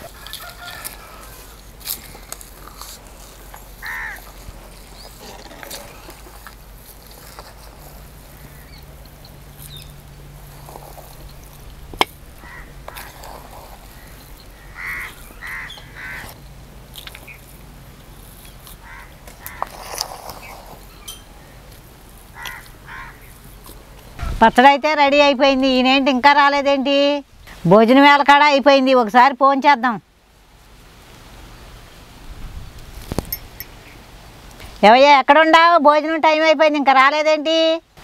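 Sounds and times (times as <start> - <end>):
crows cawing: 3.8 - 4.4, 12.4 - 13.2, 13.9 - 16.4, 18.8 - 19.8, 22.3 - 23.3.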